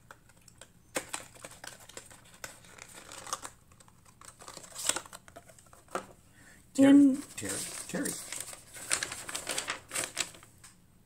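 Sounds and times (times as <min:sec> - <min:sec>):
fingernails clicking on packaging: 0:00.0 - 0:06.0.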